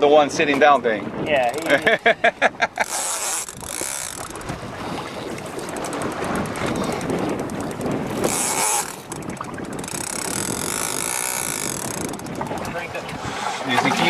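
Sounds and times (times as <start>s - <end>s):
boat rushing through sea: 0.0s - 14.0s
wind buffeting microphone: 0.0s - 14.0s
fishing reel clicking: 1.5s - 1.8s, 2.8s - 12.8s.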